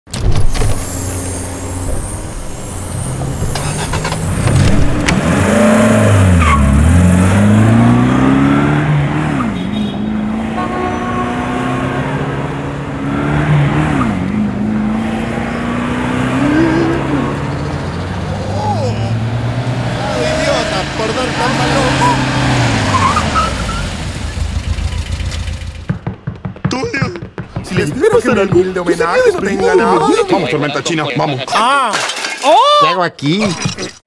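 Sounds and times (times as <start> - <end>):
road noise: 0.1 - 31.5
car engine accelerating: 0.6 - 26.1.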